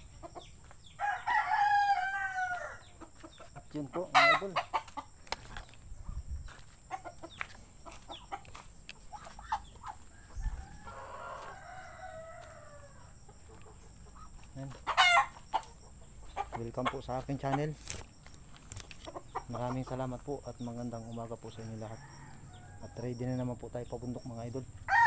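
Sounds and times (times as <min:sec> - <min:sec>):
chickens clucking and squawking: 0:00.0 - 0:25.0
rooster crowing: 0:01.0 - 0:03.0, 0:09.7 - 0:13.6, 0:14.9 - 0:15.5, 0:21.7 - 0:23.2.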